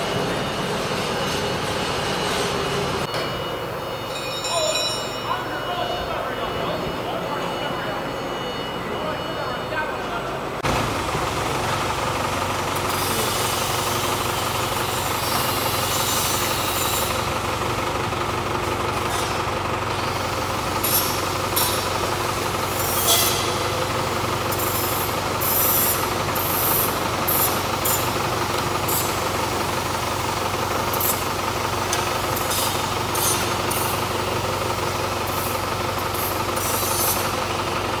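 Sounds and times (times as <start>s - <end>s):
forklift engine running: 0.0s - 38.0s.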